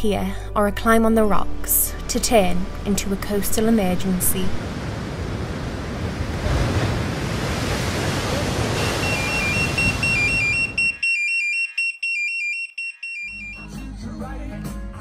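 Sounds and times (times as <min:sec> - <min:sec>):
sea surf washing: 0:02.0 - 0:10.8
electronic pager alert beeping: 0:08.8 - 0:13.7.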